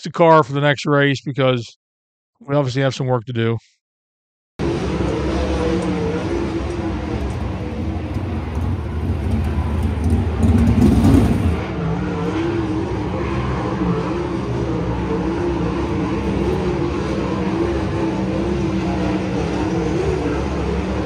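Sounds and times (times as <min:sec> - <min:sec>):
race car engines droning: 0:04.6 - 0:21.0.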